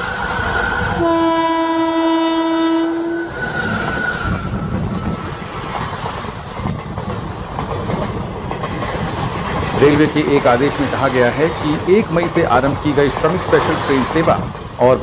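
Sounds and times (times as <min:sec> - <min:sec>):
locomotive horn: 0:01.0 - 0:03.4
train wheels clattering on rails: 0:03.2 - 0:15.0.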